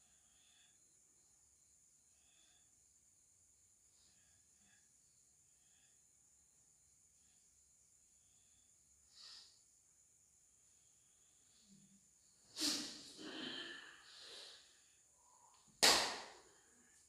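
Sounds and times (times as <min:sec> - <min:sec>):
person breathing forcefully: 0:12.5 - 0:15.6.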